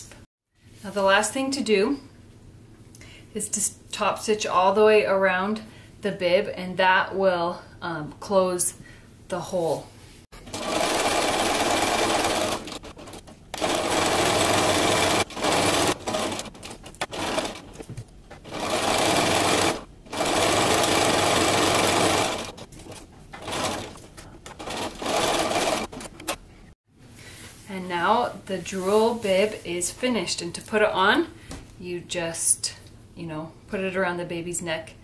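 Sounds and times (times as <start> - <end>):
sewing machine stitching: 10.4 - 26.4.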